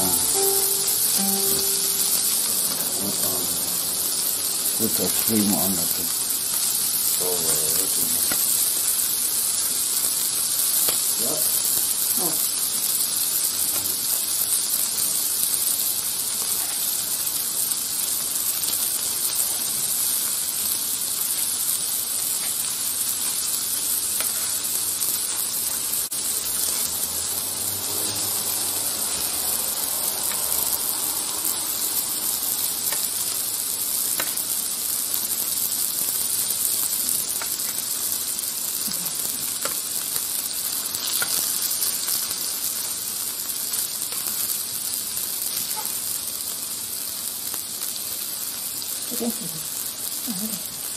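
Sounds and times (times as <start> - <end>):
meat sizzling on a grill plate: 0.0 - 50.9.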